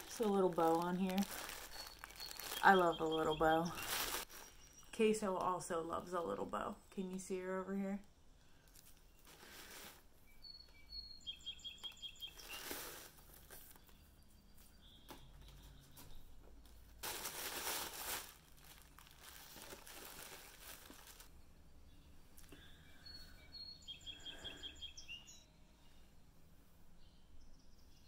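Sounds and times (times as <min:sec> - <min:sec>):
paper crinkling and rustling: 0:00.0 - 0:04.7, 0:08.7 - 0:10.0, 0:11.8 - 0:14.0, 0:17.0 - 0:21.3
faint high chirps: 0:01.2 - 0:05.0, 0:21.3 - 0:26.4.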